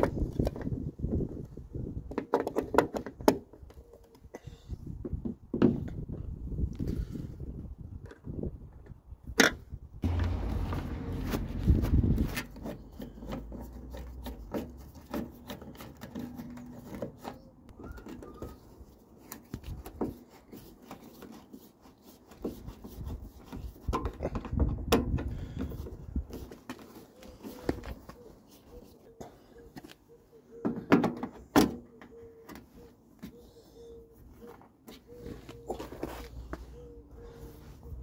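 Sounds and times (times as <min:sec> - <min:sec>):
low rumble: 0:10.0 - 0:12.4.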